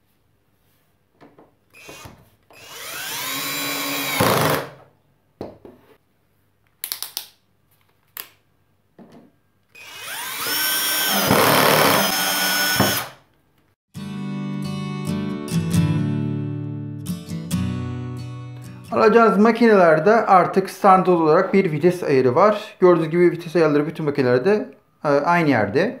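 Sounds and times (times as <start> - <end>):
cordless drill motor whine: 1.7 - 4.6, 9.8 - 13.2.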